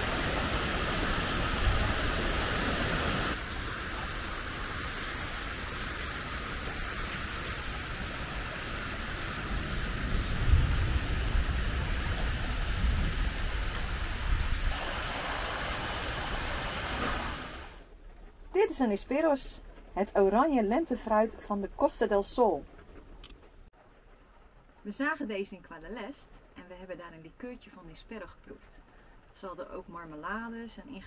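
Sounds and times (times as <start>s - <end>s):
rainwater rushing over pavement: 0.0s - 18.0s.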